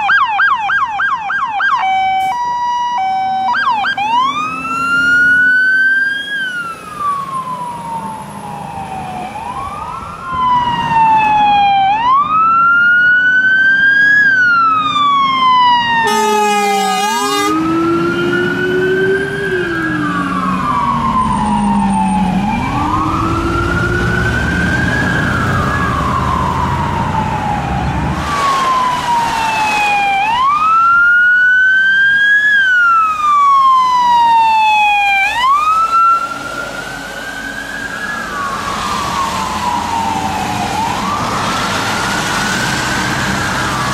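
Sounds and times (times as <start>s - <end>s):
fire engine sirens wailing: 0.0s - 43.9s
low-pitched siren wailing: 0.0s - 43.9s
air horn blast: 16.0s - 17.7s.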